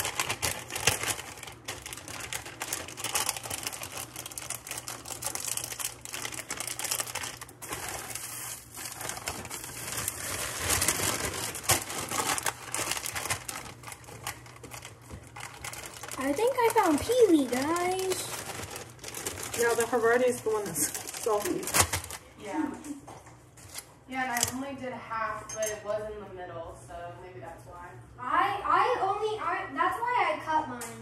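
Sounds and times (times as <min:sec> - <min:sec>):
plastic bag crinkling: 0:00.0 - 0:22.4.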